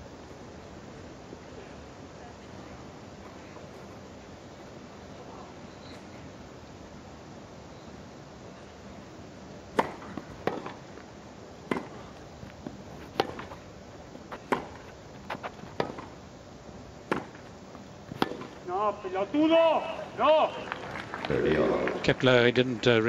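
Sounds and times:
steady background hush: 0.0 - 23.0
tennis ball struck by racquets: 9.7 - 10.8, 11.7 - 13.6, 14.3 - 16.2, 17.0 - 17.5, 18.1 - 18.6.

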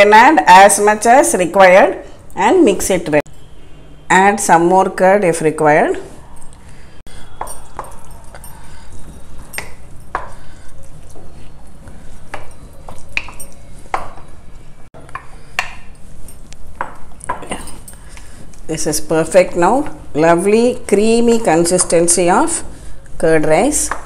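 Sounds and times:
spoon clinking against glass bowl: 7.2 - 10.5.

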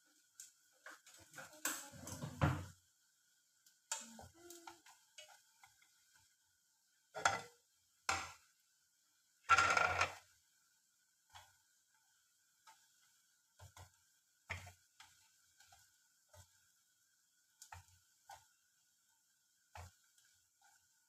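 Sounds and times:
chopsticks scraping in frying pan: 7.1 - 8.4, 9.5 - 10.3, 11.3 - 16.8.

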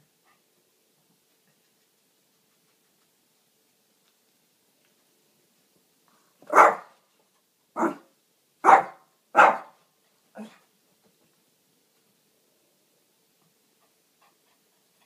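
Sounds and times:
dog barking: 6.5 - 7.0, 7.8 - 9.8.

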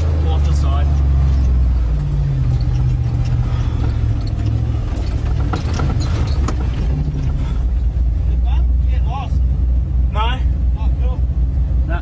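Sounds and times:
off-road vehicle engine running: 0.0 - 12.0
loose gear rattling: 0.9 - 7.7.

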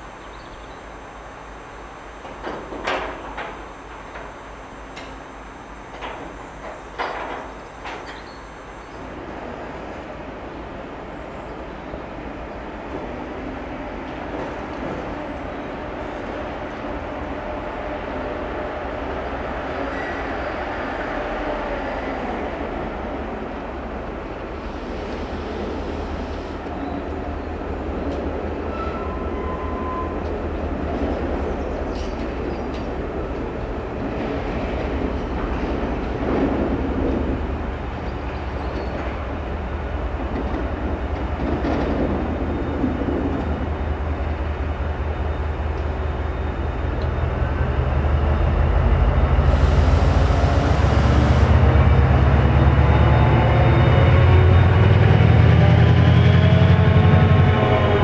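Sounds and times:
locomotive engine drone: 0.0 - 58.0
air hiss: 49.4 - 51.6.

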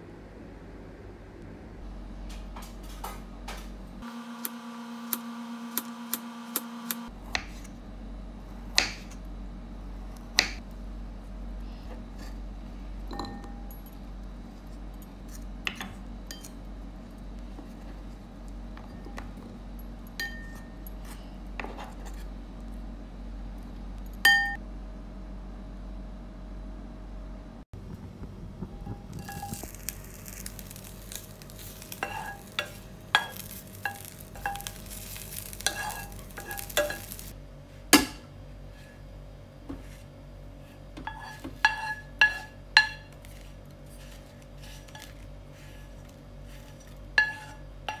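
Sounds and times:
ceramic bowl clinks: 24.3 - 24.6.

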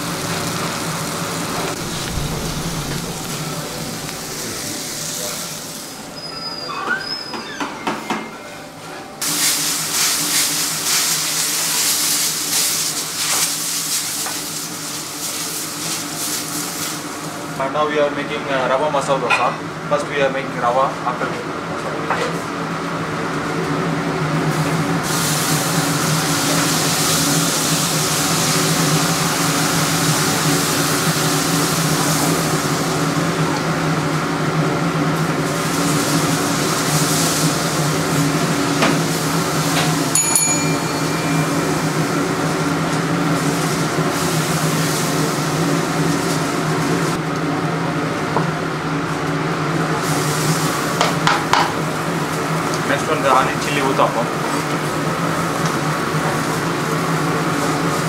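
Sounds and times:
sizzling on a hot griddle: 0.0 - 6.4, 9.2 - 17.6, 24.4 - 47.3, 49.0 - 58.0
kitchen machine hum: 0.0 - 14.4, 23.2 - 58.0
brief high tone: 40.2 - 42.4.

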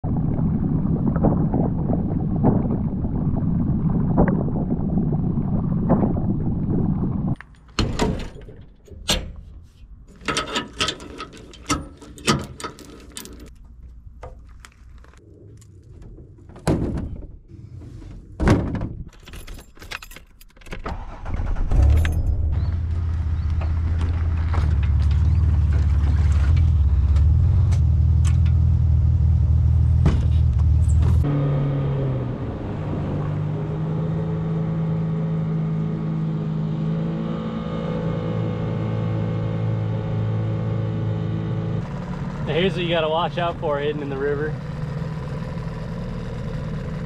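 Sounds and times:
wind rumbling on microphone: 0.0 - 7.4
gear clicking and clinking: 10.1 - 13.7, 19.1 - 20.8
boat running: 30.0 - 47.0.

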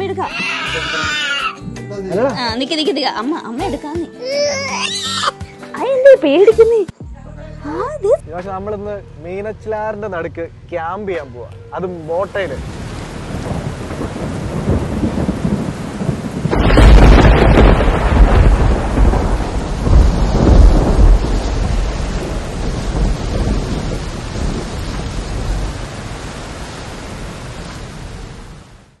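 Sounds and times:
steady rain: 11.8 - 29.0
thunderclap rumbling: 12.6 - 28.8.

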